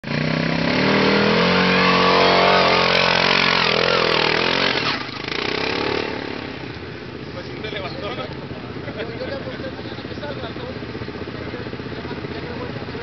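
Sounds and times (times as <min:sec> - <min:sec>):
buggy engine revving hard: 0:00.0 - 0:06.7.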